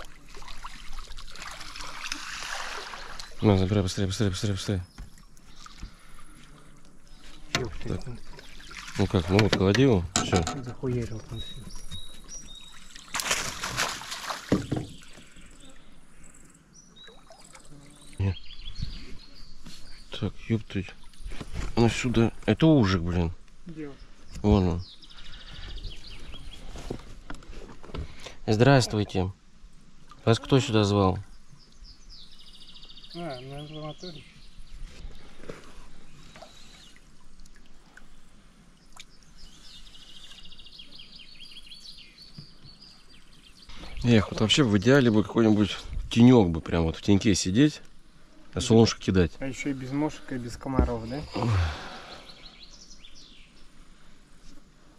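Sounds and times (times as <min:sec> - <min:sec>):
water splashing beside boat: 0:00.0 - 0:15.5
small bird singing: 0:10.8 - 0:13.1, 0:14.8 - 0:21.4, 0:23.7 - 0:26.6, 0:30.7 - 0:35.2, 0:38.0 - 0:45.3, 0:49.4 - 0:53.8
dull knocks: 0:50.7 - 0:51.1.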